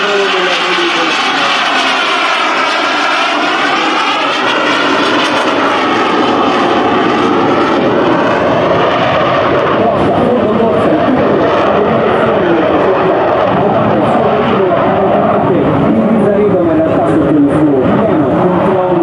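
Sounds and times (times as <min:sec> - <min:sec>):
jet aircraft flyby: 0:00.0 - 0:19.0.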